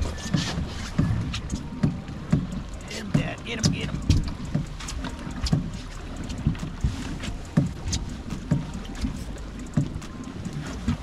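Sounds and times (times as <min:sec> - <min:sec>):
steady low hum: 0:00.0 - 0:11.0
water slapping against boat hull: 0:00.0 - 0:11.0.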